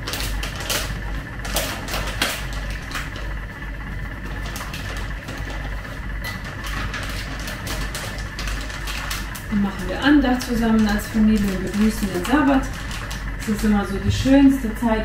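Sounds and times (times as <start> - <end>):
steady low hum: 0.0 - 15.0
packet crinkling: 4.3 - 13.5.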